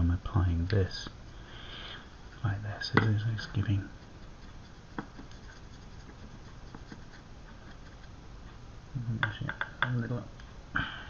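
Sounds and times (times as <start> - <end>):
paintbrush dabbing on rough surface: 0.9 - 8.6.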